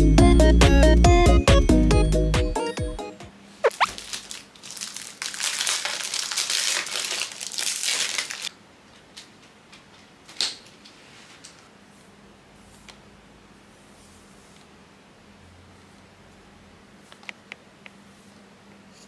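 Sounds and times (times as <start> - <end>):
plastic packaging crinkling: 3.7 - 8.5.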